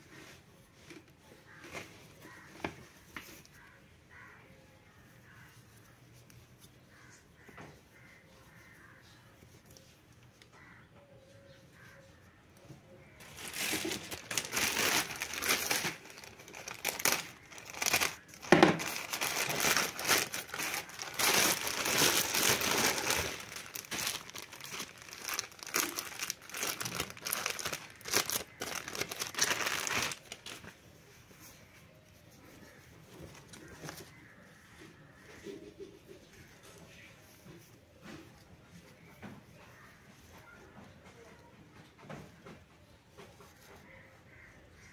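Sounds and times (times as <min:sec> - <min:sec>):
plastic bag crinkling: 0:13.1 - 0:30.7.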